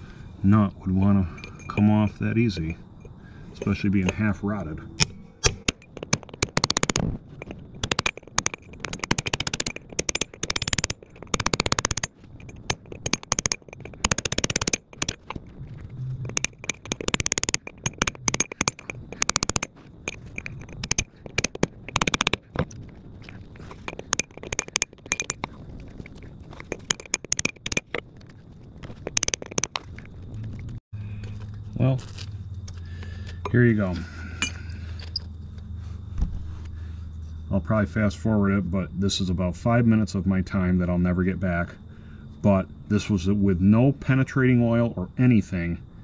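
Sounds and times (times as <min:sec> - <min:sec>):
loose rust grating: 0:00.9 - 0:37.4
chisel scraping against metal nut: 0:01.3 - 0:01.9, 0:03.0 - 0:28.3, 0:28.9 - 0:30.1.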